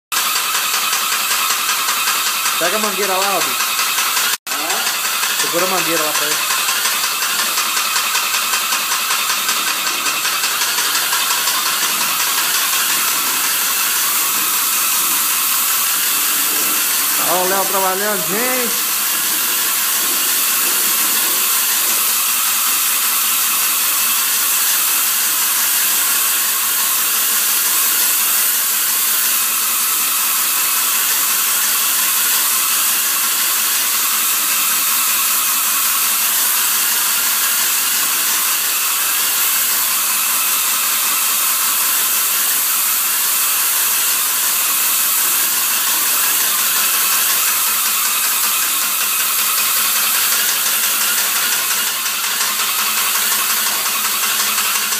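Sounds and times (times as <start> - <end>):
paint spray gun hissing: 0.2 - 54.9.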